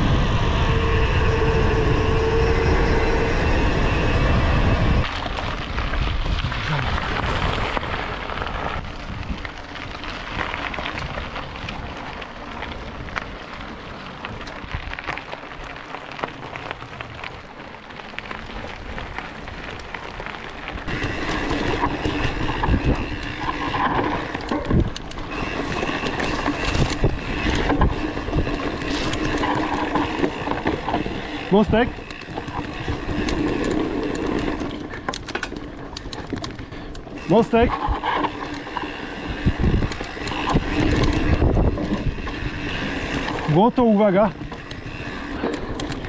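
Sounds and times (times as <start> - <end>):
steady high buzz: 0.0 - 5.3
wind rushing over microphone: 0.0 - 15.1, 20.8 - 46.0
bike tyres rolling on gravel: 0.0 - 46.0
bike knocks and rattles: 5.0 - 46.0.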